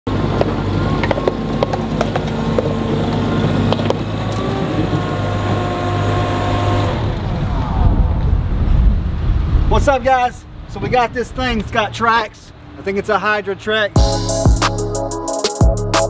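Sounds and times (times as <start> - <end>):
tracked vehicle engine running: 0.1 - 7.7.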